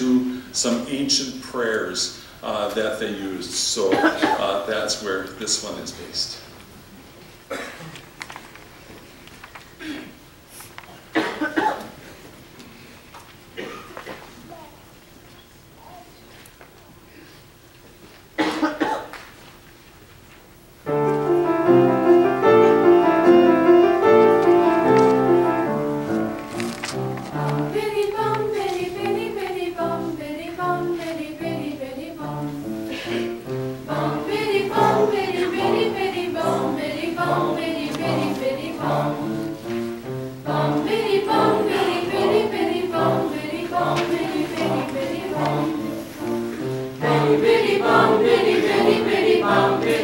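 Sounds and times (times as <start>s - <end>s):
piano: 20.8s - 50.0s
mixed choir singing: 20.9s - 50.0s.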